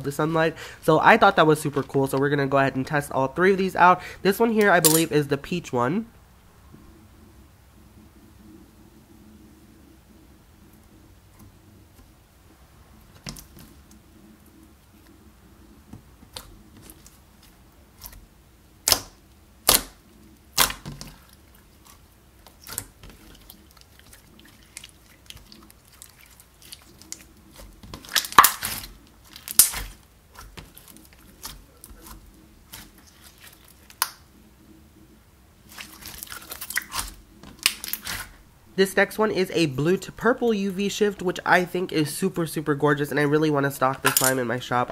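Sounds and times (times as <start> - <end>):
slime squelching and popping: 18.8 - 34.3, 35.7 - 38.4.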